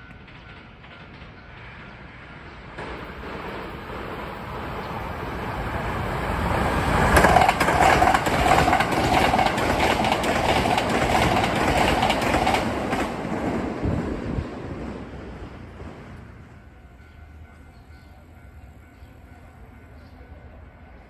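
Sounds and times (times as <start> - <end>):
electric train passing: 0.0 - 21.0
wheels clacking over rail joints: 6.0 - 13.8.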